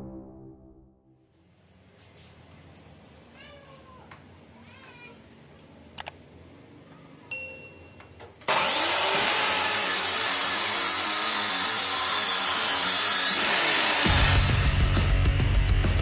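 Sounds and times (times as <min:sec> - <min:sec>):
circular saw cutting wood: 0:08.5 - 0:15.1.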